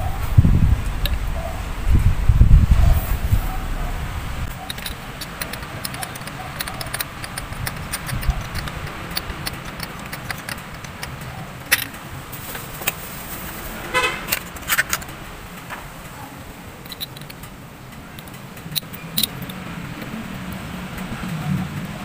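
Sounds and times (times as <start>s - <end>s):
metallic taps of hand tools: 4.6s - 12.0s
car horn toot: 13.8s - 14.4s.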